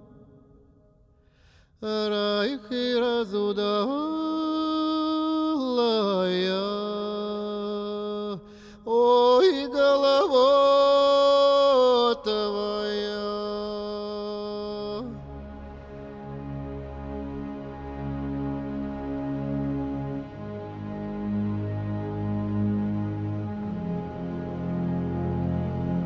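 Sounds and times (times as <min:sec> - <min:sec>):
solo voice singing chant-like: 0:01.8 - 0:15.3.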